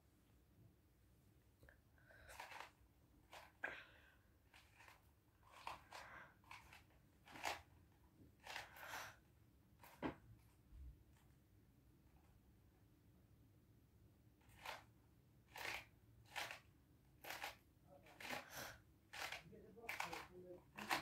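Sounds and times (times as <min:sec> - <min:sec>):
faint rustling and crinkling: 0:01.7 - 0:08.8, 0:09.8 - 0:11.4.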